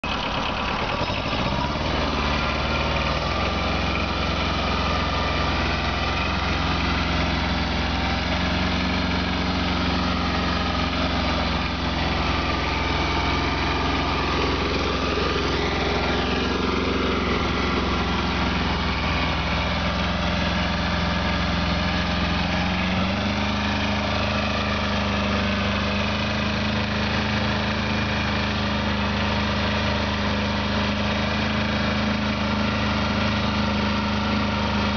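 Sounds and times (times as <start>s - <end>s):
tractor diesel engine running: 0.0s - 34.9s.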